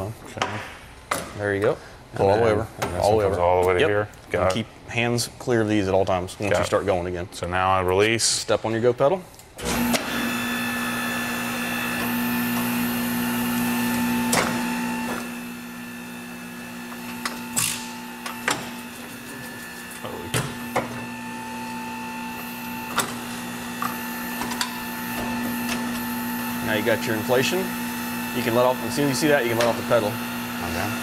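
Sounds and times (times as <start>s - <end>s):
tire changer motor humming: 9.6s - 31.0s.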